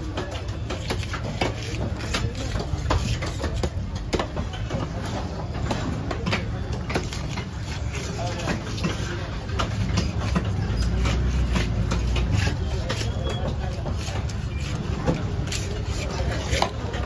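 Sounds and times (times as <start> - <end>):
knife scraping fish scales: 10.2 - 16.8.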